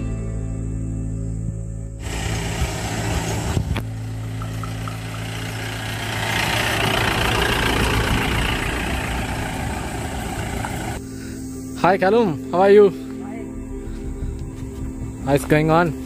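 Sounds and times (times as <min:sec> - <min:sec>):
jeep engine running: 0:02.0 - 0:11.0.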